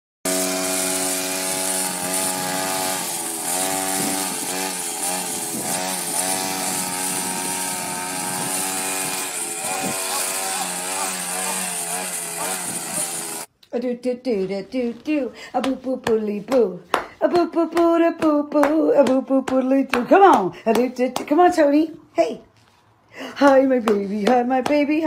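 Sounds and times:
string trimmer engine running: 0.3s - 13.5s.

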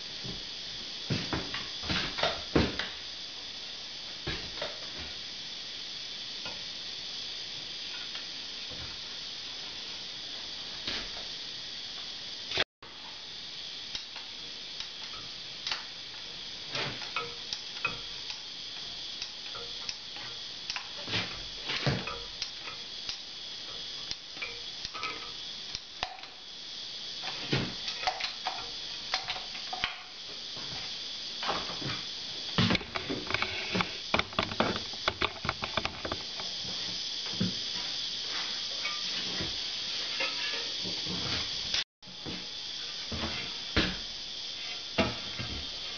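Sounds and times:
steady hiss: 0.0s - 45.9s
clicks and knocks of hand work: 32.6s - 36.5s.

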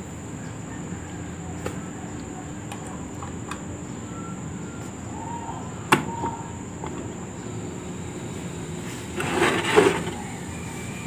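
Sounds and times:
electric fan humming: 0.0s - 11.0s.

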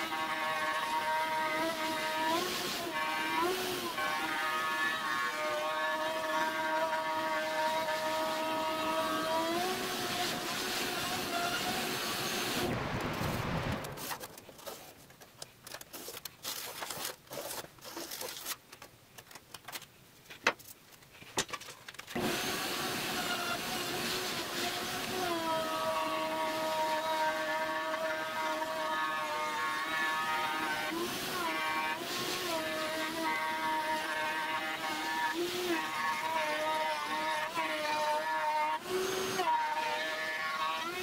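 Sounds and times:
wood router whining: 0.0s - 12.7s, 22.1s - 41.0s.

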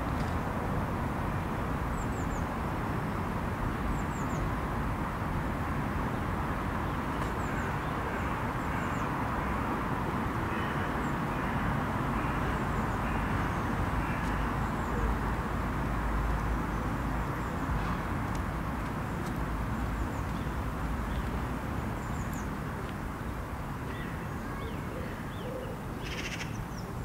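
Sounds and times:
distant road traffic hum: 0.0s - 27.0s.

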